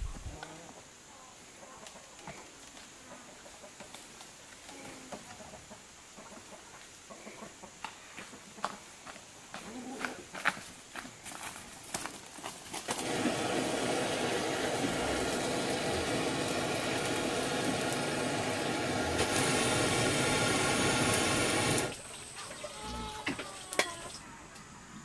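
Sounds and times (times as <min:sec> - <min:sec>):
running water: 0:12.9 - 0:24.2.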